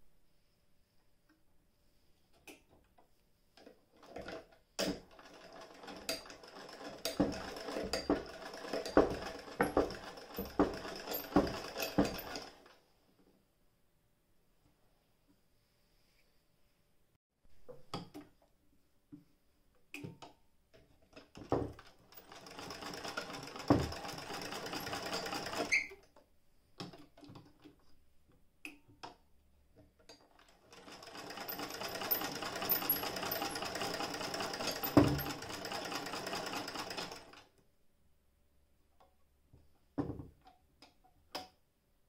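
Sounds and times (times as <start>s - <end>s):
hand-crank sewing machine stitching: 3.6s - 12.8s, 21.1s - 26.1s, 30.1s - 37.6s.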